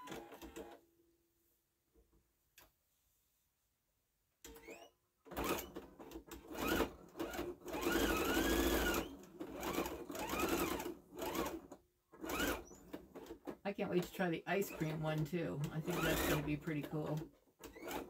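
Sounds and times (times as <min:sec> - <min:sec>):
sewing machine motor whine: 0:04.5 - 0:11.6, 0:12.2 - 0:13.4, 0:14.7 - 0:18.0.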